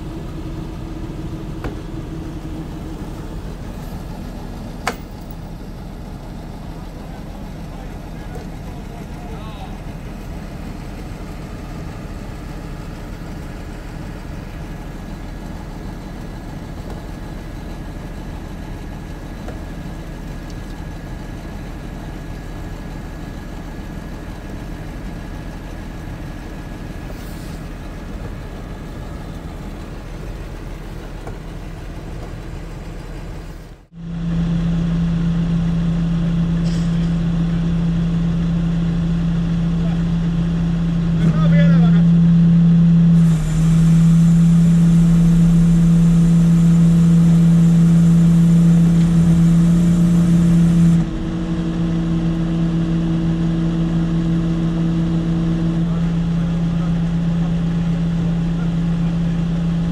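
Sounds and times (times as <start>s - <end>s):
truck engine running: 0.0s - 59.9s.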